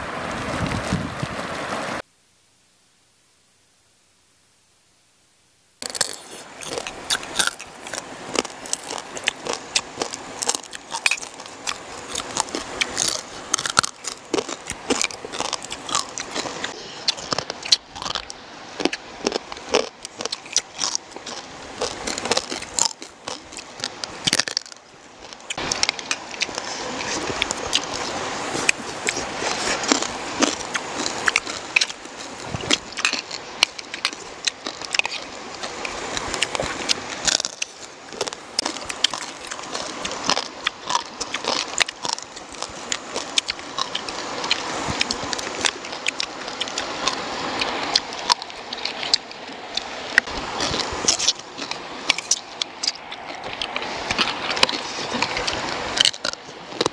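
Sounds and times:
people chewing crunchy food: 5.8 - 56.9.

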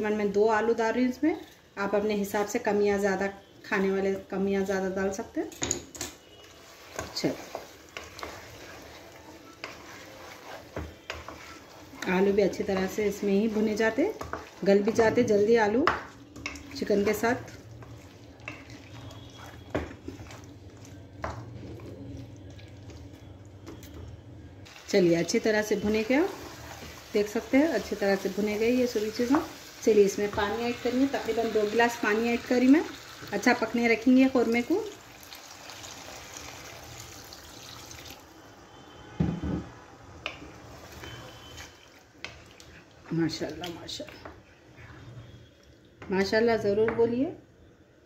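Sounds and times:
spoon scraping cooking pot: 6.3 - 21.8
water pouring into pot: 34.8 - 38.3.

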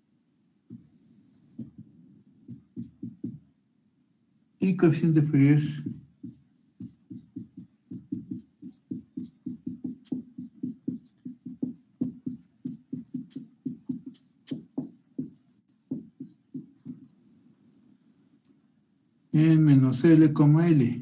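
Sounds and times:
marker squeaking on whiteboard: 2.5 - 3.4, 5.6 - 17.1
marker tip tapping: 2.5 - 3.4, 5.8 - 17.0.

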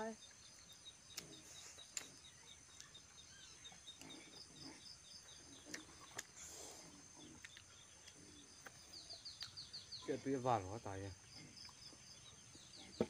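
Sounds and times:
birds chirping: 0.0 - 13.0
mouth sounds of eating: 3.6 - 10.0.

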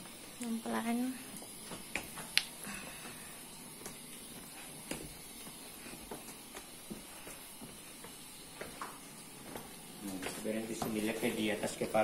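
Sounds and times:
steady high hiss: 0.0 - 12.0
footsteps on cave floor: 3.8 - 12.0.

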